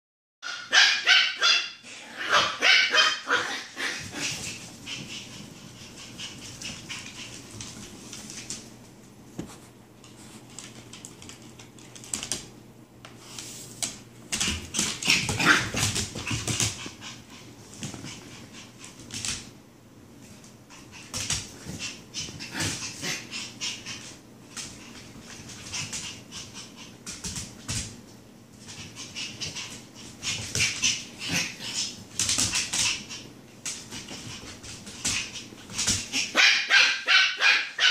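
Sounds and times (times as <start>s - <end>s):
dog yelps: 0.4s - 4.0s, 36.2s - 37.9s
puppy yipping and barking: 0.4s - 4.0s, 36.2s - 37.9s
paws scuffling on hardwood floor: 2.6s - 37.2s.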